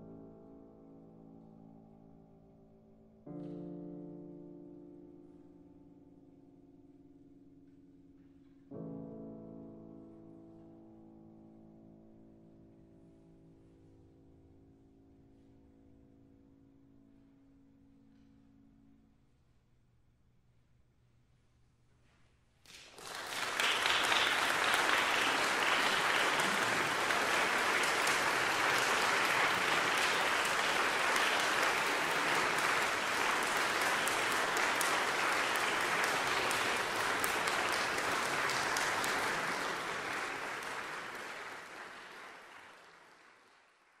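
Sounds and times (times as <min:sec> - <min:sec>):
audience applauding: 0:22.7 - 0:44.0.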